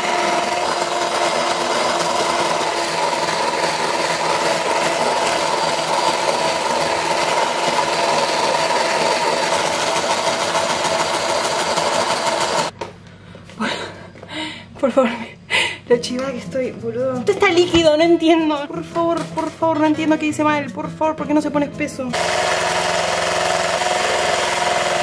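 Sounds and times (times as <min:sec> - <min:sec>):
electric hand mixer whine: 0:00.0 - 0:12.8, 0:22.1 - 0:25.0.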